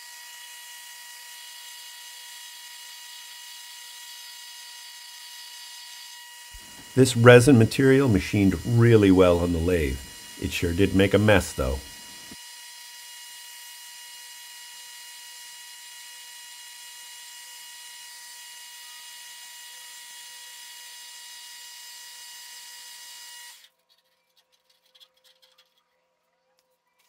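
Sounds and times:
metal lathe whining: 0.0s - 12.6s.

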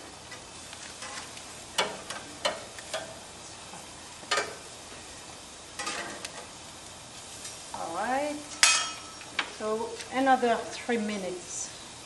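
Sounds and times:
patties sizzling on a grill: 0.0s - 12.0s
metal spatula scraping grill: 0.3s - 3.2s, 5.8s - 6.6s.

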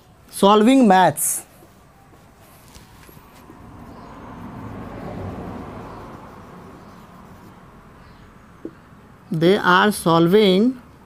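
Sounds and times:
motor vehicle passing by: 2.4s - 9.2s.

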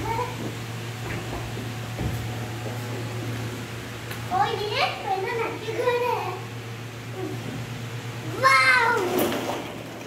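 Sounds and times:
child's voice: 0.0s - 0.5s, 4.3s - 6.5s, 8.2s - 9.3s
steady low hum: 0.0s - 10.0s.

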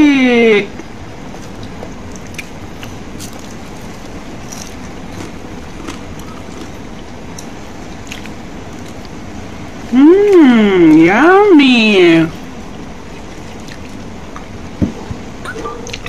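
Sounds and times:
steady background noise: 0.0s - 16.0s.

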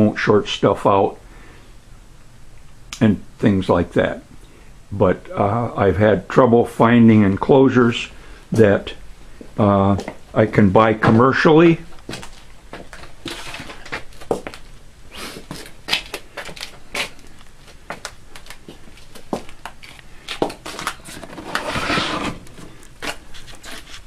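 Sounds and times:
crinkling rustle: 11.9s - 14.8s, 15.4s - 24.0s.

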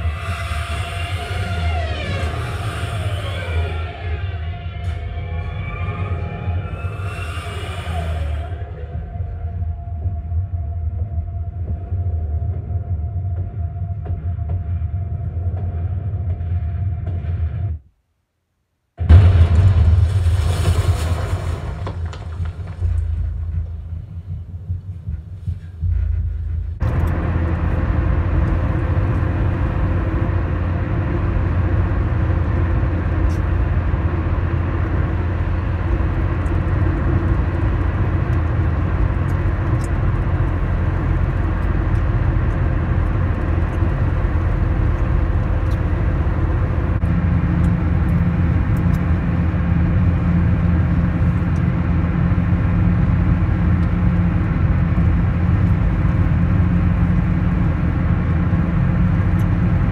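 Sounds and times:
soundtrack low rumble: 0.0s - 17.9s, 19.0s - 59.9s
road and engine noise in car: 25.4s - 59.9s.

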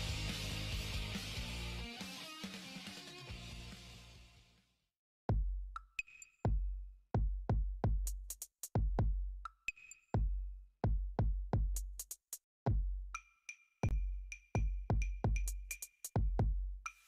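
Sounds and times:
electronic drum-machine beat: 5.3s - 17.0s.

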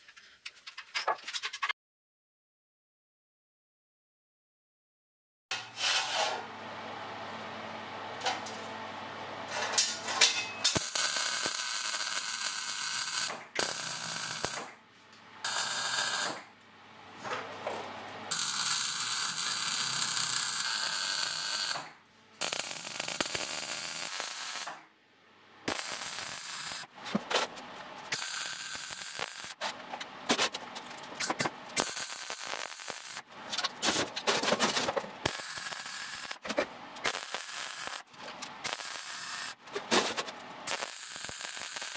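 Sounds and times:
arc welding hiss: 10.7s - 14.7s, 15.5s - 16.4s, 18.3s - 21.8s, 22.4s - 24.7s, 25.7s - 26.9s, 28.1s - 29.6s, 31.8s - 33.2s, 35.2s - 36.4s, 37.0s - 39.6s, 40.7s - 41.9s.

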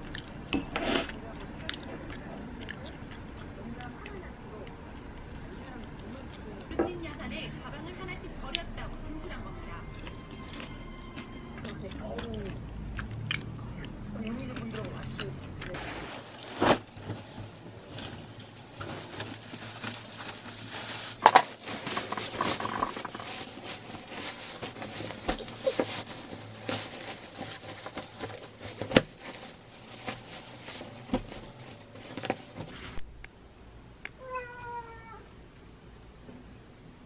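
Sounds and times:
bed linen rustling and flapping: 15.8s - 32.8s
cat meowing: 34.2s - 35.3s.

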